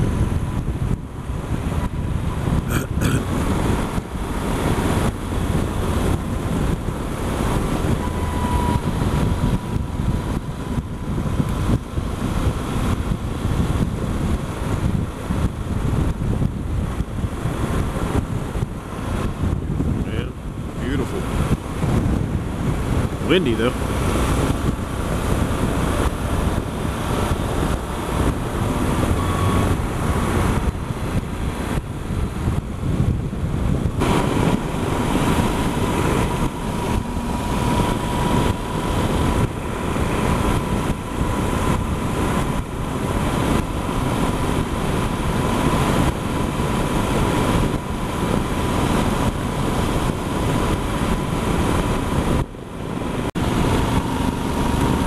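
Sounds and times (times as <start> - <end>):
motorcycle engine running: 0.0 - 55.0
wind buffeting microphone: 0.0 - 55.0.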